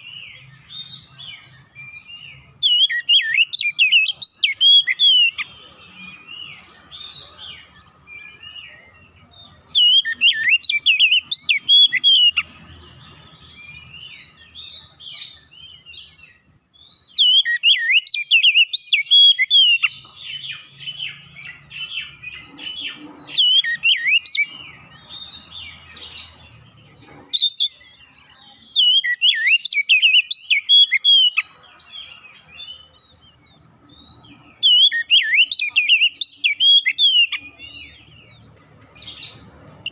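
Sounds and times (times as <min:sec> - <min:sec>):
bird singing whistled phrases: 0:00.4 - 0:07.5, 0:09.7 - 0:12.5, 0:16.8 - 0:22.2, 0:22.8 - 0:24.5, 0:28.7 - 0:31.5, 0:34.0 - 0:37.8
bird twittering: 0:00.7 - 0:07.4, 0:09.7 - 0:12.5, 0:16.9 - 0:27.9, 0:28.7 - 0:39.9.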